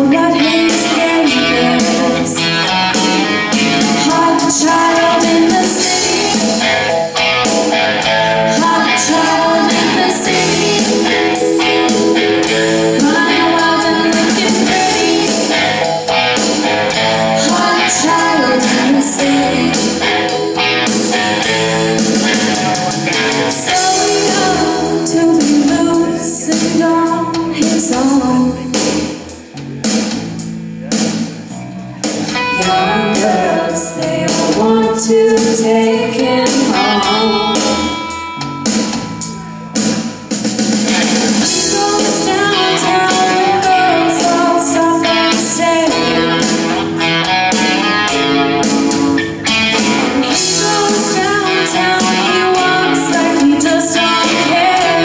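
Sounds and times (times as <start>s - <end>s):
vocals: 0.0s - 40.2s, 40.8s - 55.0s
drum kit: 0.0s - 55.0s
electric guitar: 0.0s - 55.0s
live rock band: 0.0s - 55.0s.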